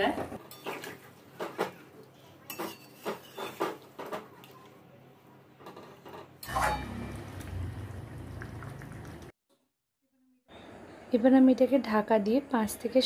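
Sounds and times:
metal spatula scraping a pot: 2.5 - 3.8, 6.4 - 7.1.

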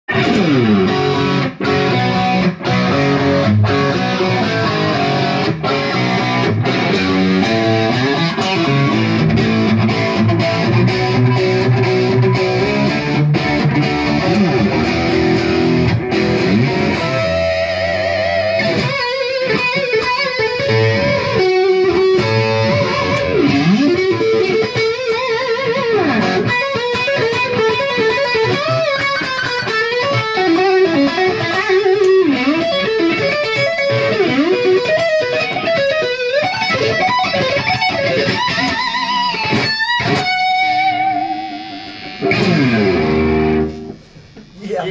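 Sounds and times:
electric guitar through amplifier: 0.1 - 44.9.

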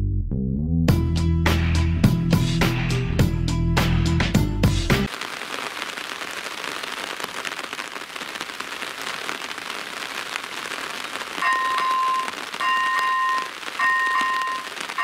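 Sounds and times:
rain on wet tarmac: 5.1 - 15.0
level crossing warning bell: 11.4 - 15.0.

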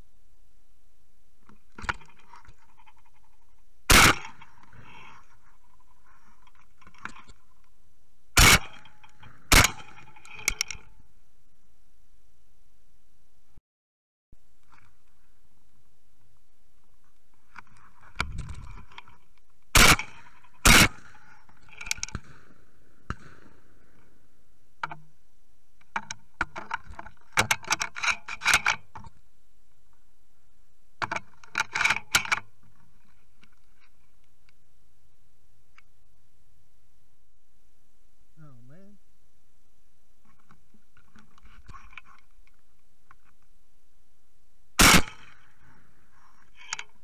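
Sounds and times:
shotgun shots: 3.9 - 4.4, 8.4 - 8.8, 9.5 - 10.0, 19.8 - 21.3, 22.1 - 23.8, 44.8 - 45.4
gun metallic clicking and rattling: 19.8 - 22.5, 31.0 - 32.4.

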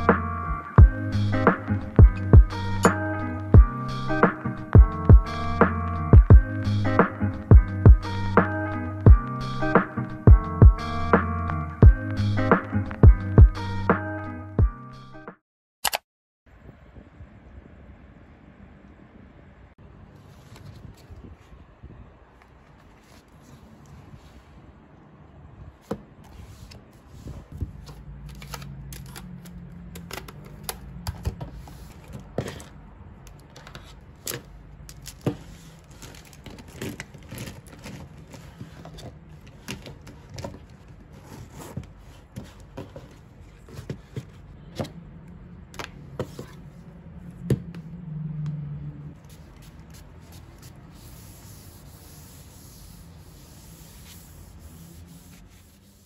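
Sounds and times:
tissue rubbing on desk: 49.2 - 56.0.

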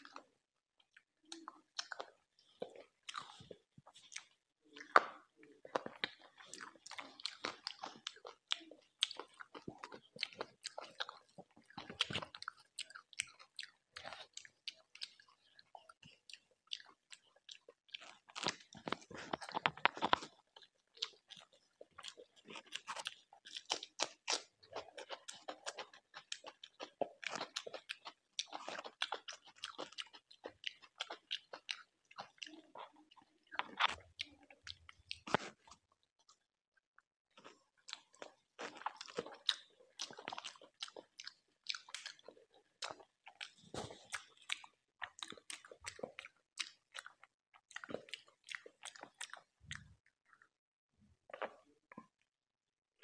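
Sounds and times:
chewing and biting food: 0.0 - 36.4, 37.3 - 52.2.

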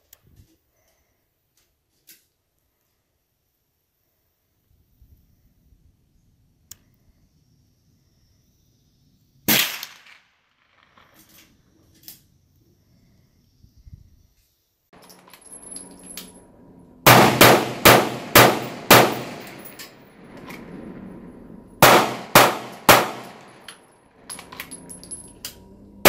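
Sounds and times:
gunshots with ringing tail: 15.9 - 24.3.

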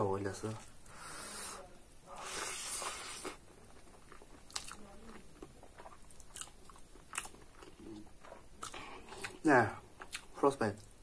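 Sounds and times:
hissy breath intake: 0.8 - 3.4
mouth chewing rice: 2.2 - 11.0.

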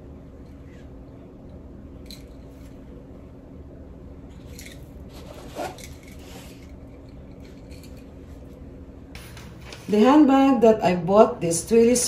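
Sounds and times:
low room hum: 0.0 - 12.0
scarves rustling: 4.4 - 8.7.

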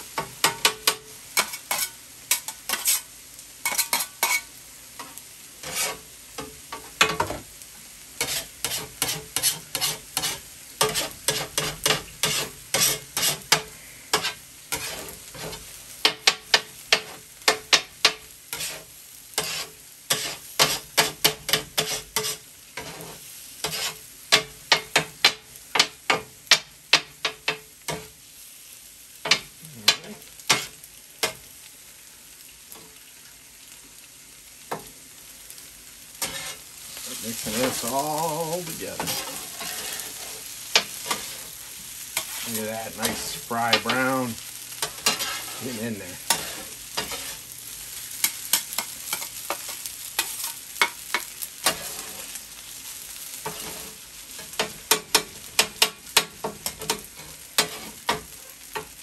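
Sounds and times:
food sizzling: 0.0 - 59.0
metal scraper tapping on griddle: 0.2 - 3.0, 3.6 - 4.4, 16.0 - 18.7, 20.1 - 22.9, 23.6 - 28.1, 54.5 - 57.0, 57.6 - 58.9.

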